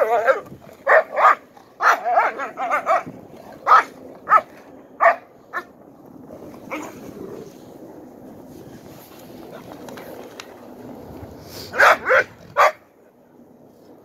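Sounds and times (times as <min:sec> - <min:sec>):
dog barking: 0:00.8 - 0:05.7, 0:11.8 - 0:12.8.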